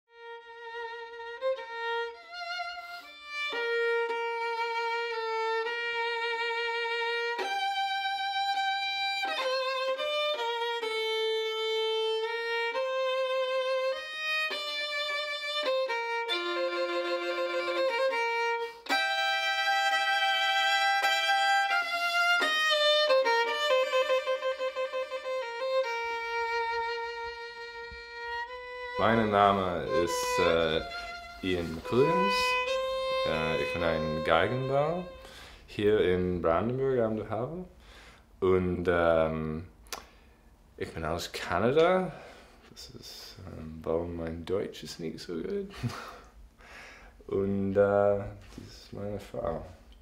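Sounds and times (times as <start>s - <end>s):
solo violin slow melody: 0.1s - 36.9s.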